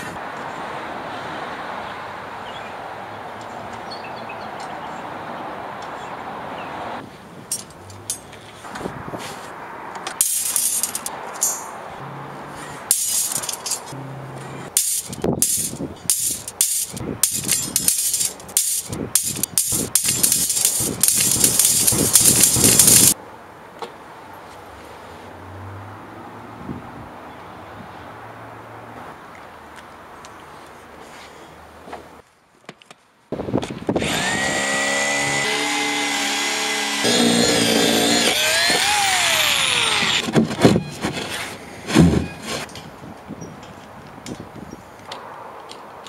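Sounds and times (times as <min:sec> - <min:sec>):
steel rings clanking on a pile: 0:10.2 - 0:11.8, 0:12.9 - 0:14.0, 0:14.7 - 0:23.2.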